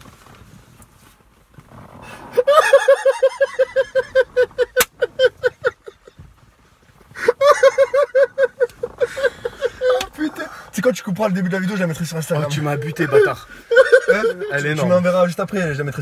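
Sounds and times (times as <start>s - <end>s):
men laughing hard: 2.3s - 6.3s, 7.2s - 10.6s, 11.8s - 14.9s.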